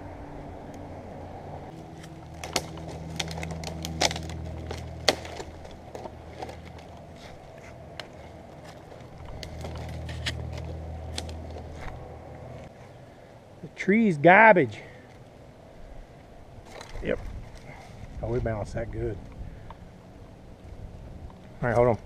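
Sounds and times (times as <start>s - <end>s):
engine idling: 0.0s - 12.7s.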